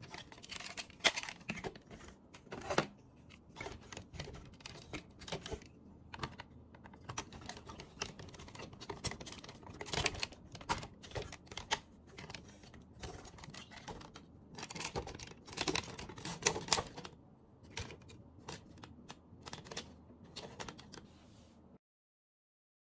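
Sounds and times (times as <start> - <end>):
plastic toy parts clicking: 3.6 - 21.0.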